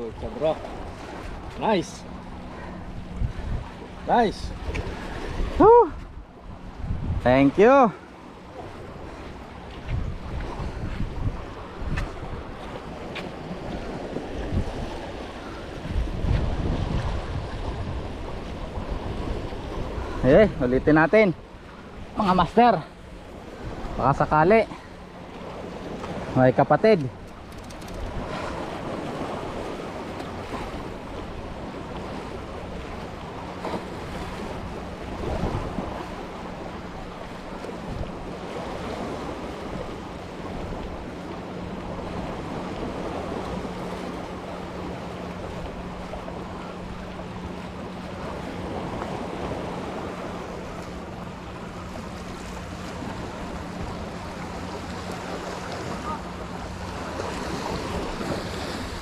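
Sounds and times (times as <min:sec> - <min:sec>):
wind on microphone: 0:00.0 - 0:08.0, 0:08.6 - 0:20.9, 0:27.2 - 0:59.0
surf washing against shore: 0:00.0 - 0:59.0
wind noise on microphone: 0:02.8 - 0:07.6, 0:08.8 - 0:20.7, 0:27.4 - 0:30.8, 0:33.6 - 0:36.3.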